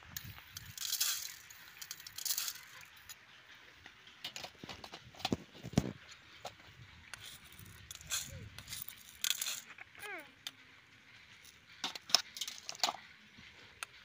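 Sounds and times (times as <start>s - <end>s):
seeds pattering onto steel plate: 0.2s - 3.2s.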